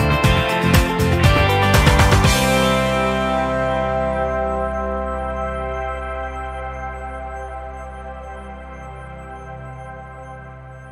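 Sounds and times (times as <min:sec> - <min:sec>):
ambient chord over low drone: 0:02.3 - 0:10.9.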